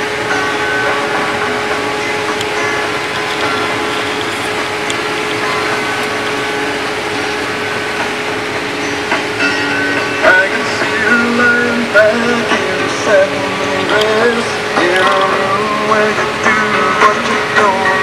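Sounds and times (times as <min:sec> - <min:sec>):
combine harvester droning: 0:00.0 - 0:18.0
radio music: 0:00.0 - 0:18.0.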